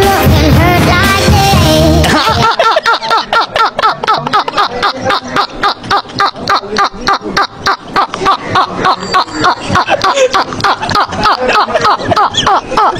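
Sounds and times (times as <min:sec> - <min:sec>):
men laughing hard: 0:02.0 - 0:12.9.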